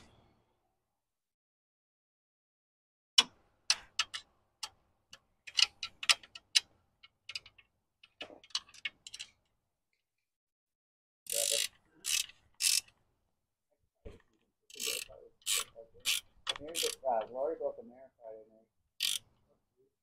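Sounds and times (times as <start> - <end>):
wrench clicking on metal: 11.3 - 12.9, 14.7 - 17.0, 19.0 - 19.3.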